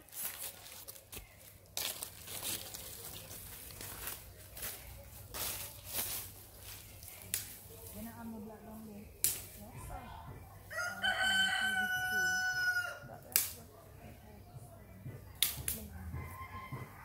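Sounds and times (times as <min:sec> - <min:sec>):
rooster crowing: 0:10.7 - 0:13.0, 0:16.2 - 0:17.0.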